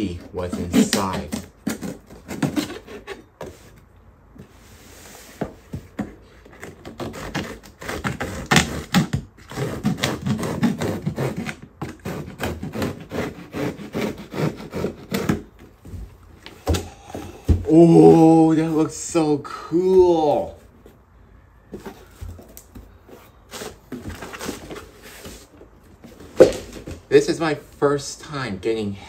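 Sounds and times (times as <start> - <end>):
cardboard scraping and knocking: 14.8 - 18.2, 21.7 - 27.1.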